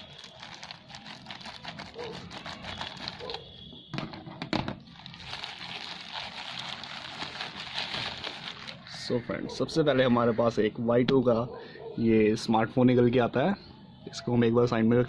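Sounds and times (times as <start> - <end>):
scissors cutting plastic bag: 0.0 - 3.4, 5.0 - 8.8
plastic bag crinkling: 0.0 - 3.5, 4.8 - 9.0.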